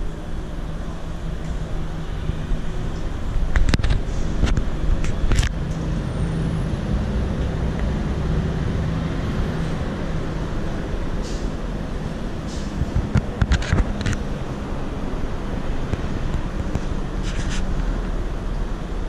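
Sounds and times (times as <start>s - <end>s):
road traffic rumble: 0.0s - 19.0s
sharp clicks and knocks: 3.5s - 5.9s, 12.5s - 14.3s.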